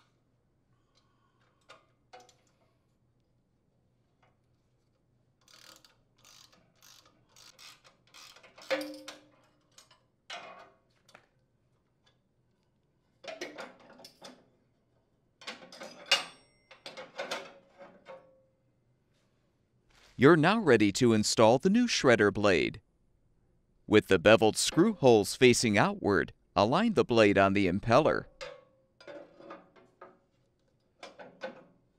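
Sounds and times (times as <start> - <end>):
ratchet wrench clicking: 5.4 - 8.7.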